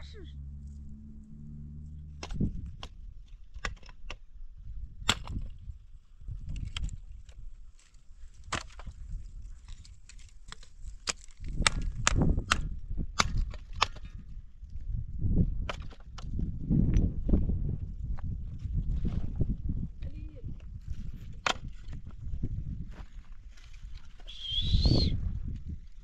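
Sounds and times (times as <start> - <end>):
low rumble: 0.0 - 3.5
brushwood snapping in campfire: 9.6 - 14.1.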